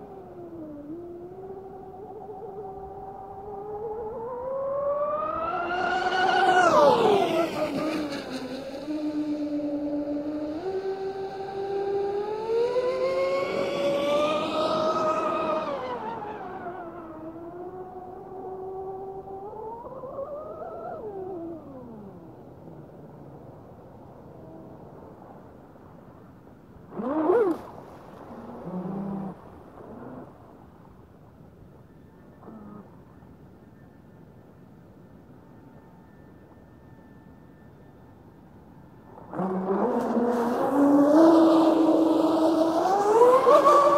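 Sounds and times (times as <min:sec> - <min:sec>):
model boat motor whining: 0:05.2 - 0:19.0.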